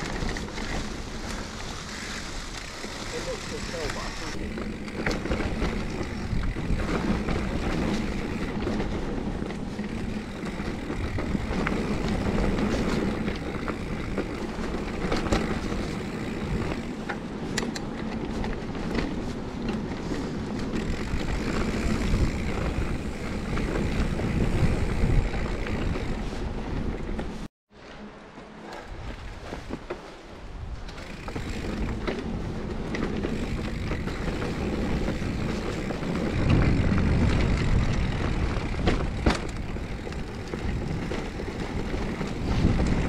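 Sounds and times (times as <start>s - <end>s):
bike rattling and clicking: 0.0s - 27.5s, 28.3s - 43.0s
wind buffeting microphone: 0.0s - 27.5s, 28.8s - 43.0s
bike tyres rolling over dirt: 0.0s - 43.0s.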